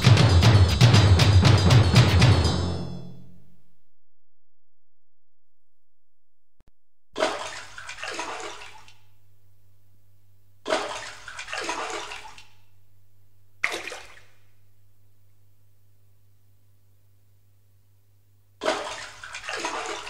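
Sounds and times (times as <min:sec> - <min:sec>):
faint low hum: 0:07.4 - 0:20.0.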